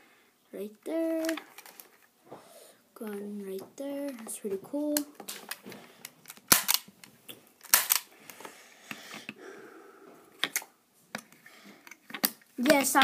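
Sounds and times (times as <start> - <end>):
toy gun clicks and knocks: 6.2 - 6.9, 7.6 - 8.1.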